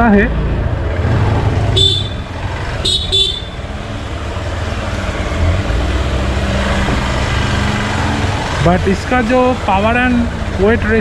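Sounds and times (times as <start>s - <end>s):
motorcycle engine running: 0.5s - 5.2s
horn beeps: 1.7s - 3.6s.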